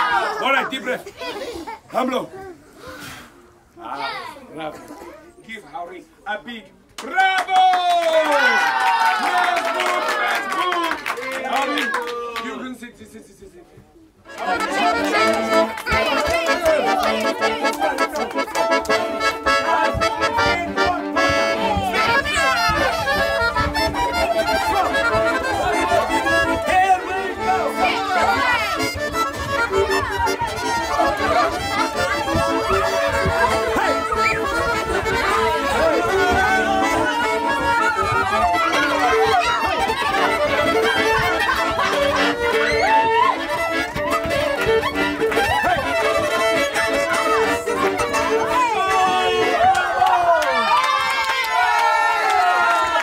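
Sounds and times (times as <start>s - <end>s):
accordion playing a quick tune: 14.3s - 49.6s
voices calling out: 14.3s - 53.0s.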